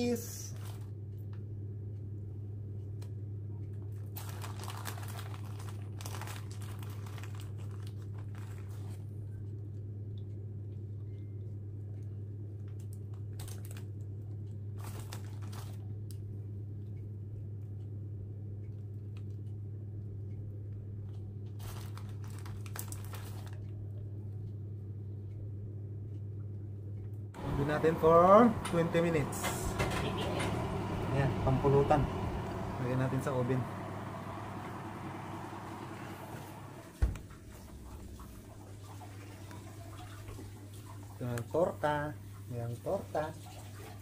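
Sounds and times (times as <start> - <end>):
plastic bag crinkling: 4.1 - 8.9, 14.8 - 15.8, 21.6 - 23.6
low hum: 24.1 - 41.2.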